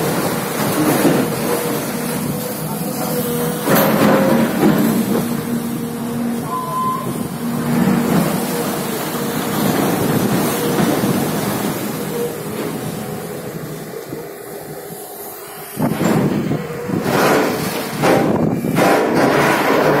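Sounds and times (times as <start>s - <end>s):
excavator diesel engine running: 0.0s - 20.0s
short higher tone: 6.4s - 7.2s.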